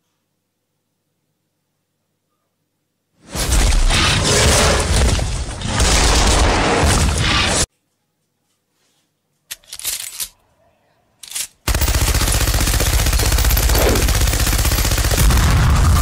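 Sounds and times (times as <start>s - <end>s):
machine gun firing: 11.6s - 16.0s.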